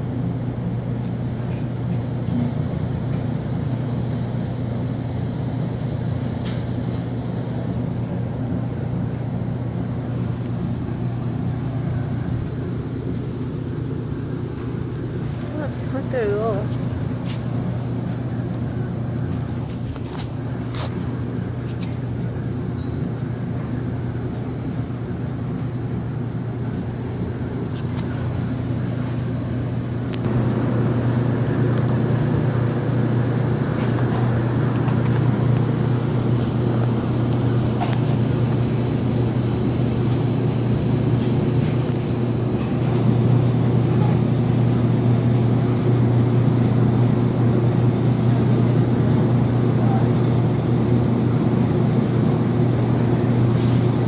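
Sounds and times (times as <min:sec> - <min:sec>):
low mechanical hum: 0:00.0 - 0:54.0.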